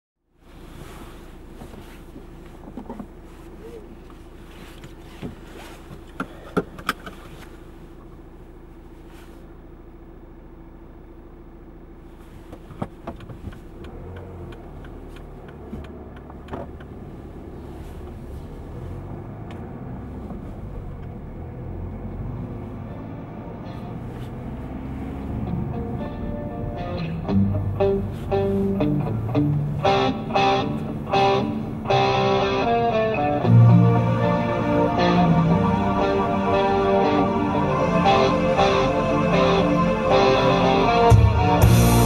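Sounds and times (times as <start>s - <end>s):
road rumble: 0.2s - 42.0s
car engine hum: 0.3s - 42.0s
clicks and knocks in cabin: 2.6s - 3.2s, 6.0s - 7.3s, 14.8s - 17.0s.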